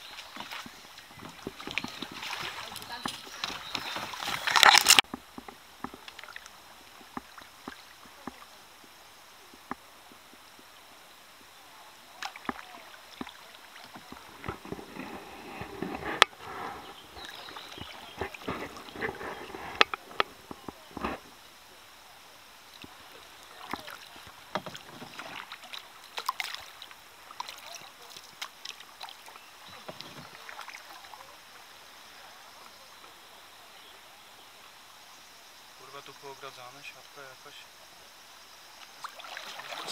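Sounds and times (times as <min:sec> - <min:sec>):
branches scraping against boat: 0:00.0 - 0:06.2, 0:13.2 - 0:21.4, 0:22.8 - 0:26.6, 0:39.4 - 0:39.9
kayak paddle splashes: 0:00.0 - 0:34.9, 0:38.8 - 0:39.9.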